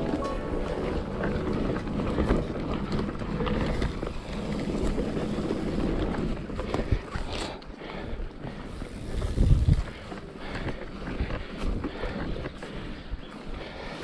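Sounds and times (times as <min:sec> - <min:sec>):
bike tyre rumble: 0:00.0 - 0:14.0
bike clattering over bumps: 0:00.9 - 0:14.0
wind rushing on microphone: 0:09.0 - 0:10.1.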